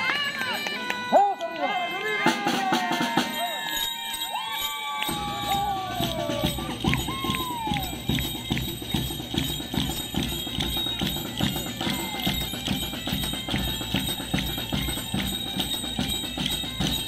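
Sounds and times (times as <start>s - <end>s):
costume bells jingling: 0.0s - 17.0s
steady drum beat: 2.2s - 3.7s, 5.1s - 17.0s.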